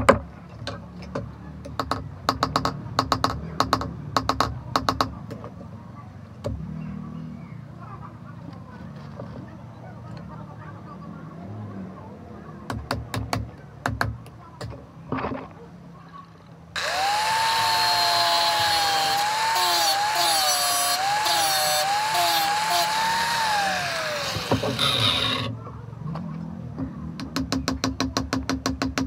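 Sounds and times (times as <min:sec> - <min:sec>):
angle grinder grinding metal: 0:16.8 - 0:25.5.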